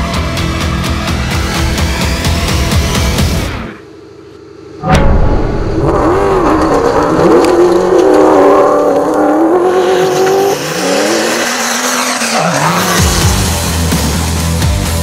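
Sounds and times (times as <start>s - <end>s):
rally car engine revving: 4.9s - 14.4s.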